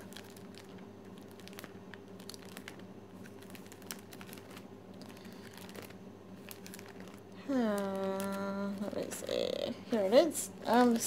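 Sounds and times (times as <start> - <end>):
faint steady hum: 0.0 - 11.0
plastic sleeves crinkling: 0.0 - 11.0.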